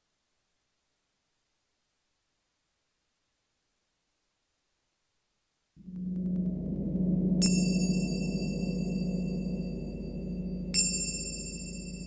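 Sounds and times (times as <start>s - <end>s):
low steady drone: 5.8s - 12.0s.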